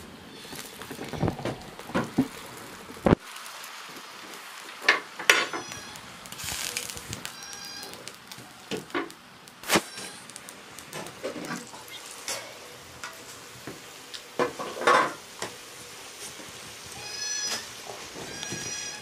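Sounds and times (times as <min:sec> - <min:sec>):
short high squeak: 0:18.3 - 0:19.0.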